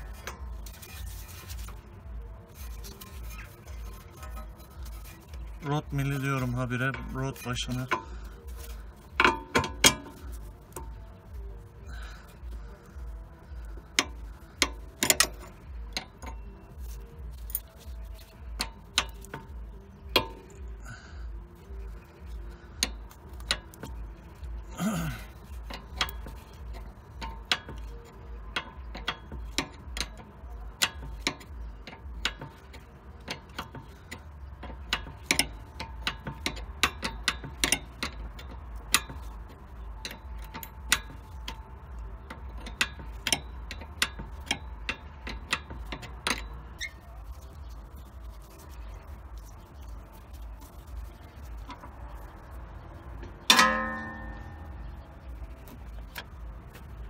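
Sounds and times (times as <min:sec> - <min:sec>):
wrench metallic clicks: 0:00.0 - 0:11.4, 0:12.3 - 0:20.8, 0:25.2 - 0:47.1.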